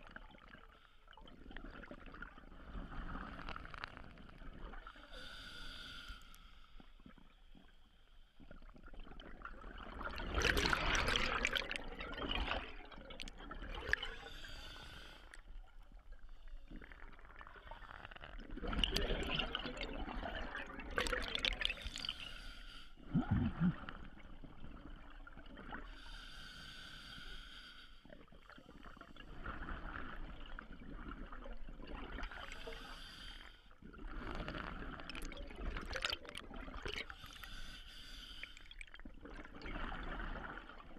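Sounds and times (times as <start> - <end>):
diver inhaling through regulator: 5.1 - 6.8, 14.2 - 15.4, 21.9 - 24.0, 26.0 - 28.1, 32.6 - 33.7, 37.1 - 38.7
gurgling exhaled bubbles: 8.8 - 14.3, 16.7 - 22.2, 23.0 - 25.9, 33.8 - 37.2.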